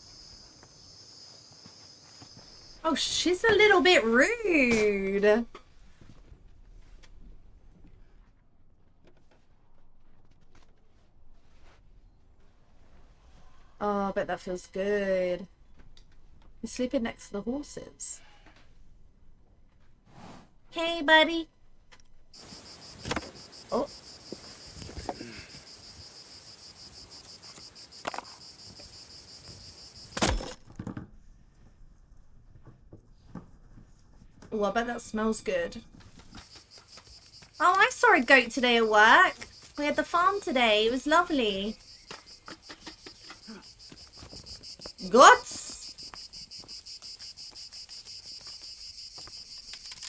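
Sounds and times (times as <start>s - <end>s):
insects chirping: 0.0s - 4.8s, 22.3s - 30.5s, 35.2s - 50.0s
woman speaking: 2.8s - 5.5s, 13.8s - 15.5s, 16.6s - 18.2s, 20.8s - 21.5s, 23.7s - 23.9s, 34.5s - 35.8s, 37.6s - 41.8s, 45.0s - 45.9s.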